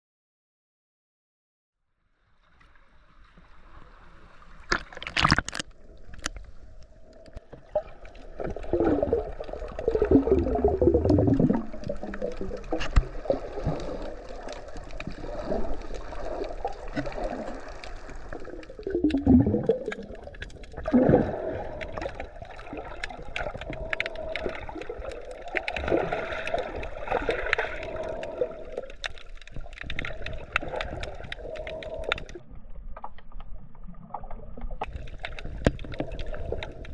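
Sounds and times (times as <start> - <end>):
muffled underwater gurgling: 7.8 - 32.6.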